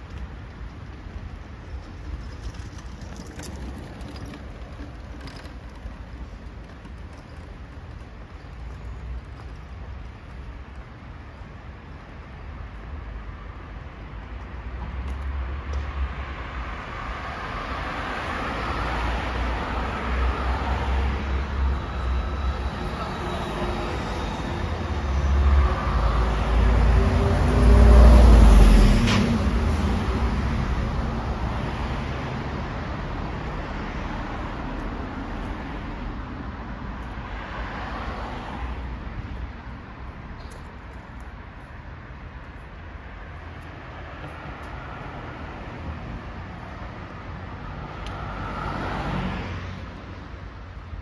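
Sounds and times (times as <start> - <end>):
low rumble of traffic: 0.0 - 51.0
vehicle passing by: 47.6 - 50.2.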